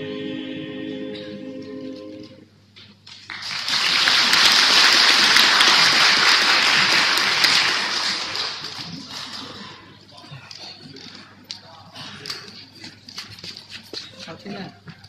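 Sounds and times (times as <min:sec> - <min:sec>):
vocal group holding a chord: 0:00.0 - 0:02.5
audience applause: 0:03.1 - 0:09.9.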